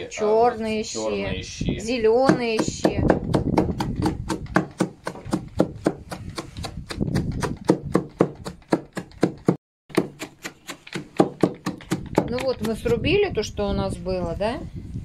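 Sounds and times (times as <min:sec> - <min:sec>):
chopper chopping vegetables in wooden trough: 0:02.2 - 0:13.1.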